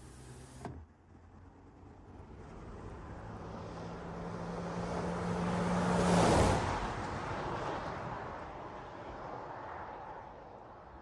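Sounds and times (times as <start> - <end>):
car passing by: 3.4 - 11.0.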